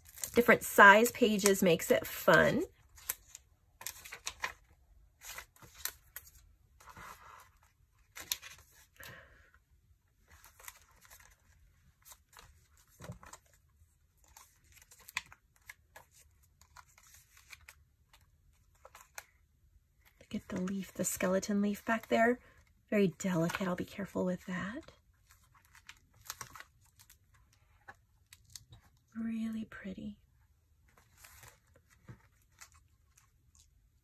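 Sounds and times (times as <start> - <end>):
paper pages rustling and flicking: 0.0 - 9.2, 10.2 - 19.4, 25.2 - 28.9, 30.9 - 33.8.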